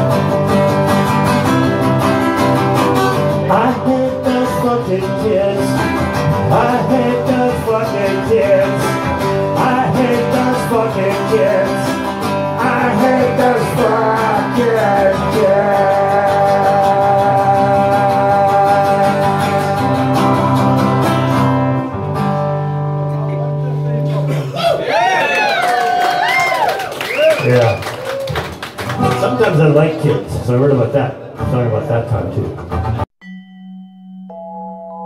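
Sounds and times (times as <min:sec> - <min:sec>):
acoustic guitar strumming: 0:00.0 - 0:24.5, 0:28.9 - 0:33.0
man singing: 0:02.6 - 0:21.0.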